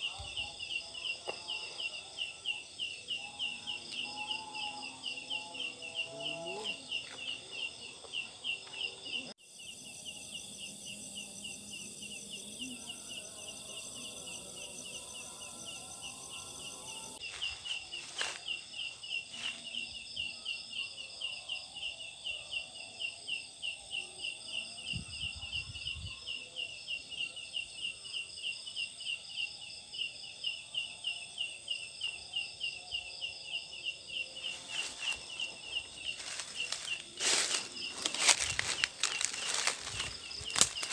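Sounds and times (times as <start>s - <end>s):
high buzz of night insects: 0.0s - 40.9s
insect shrill chirping: 9.4s - 17.2s, 34.4s - 40.9s.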